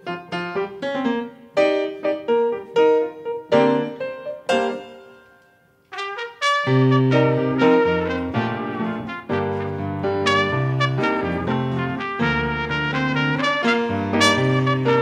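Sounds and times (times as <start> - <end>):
grand piano chords: 0.0 - 15.0
trumpet long held notes: 5.9 - 15.0.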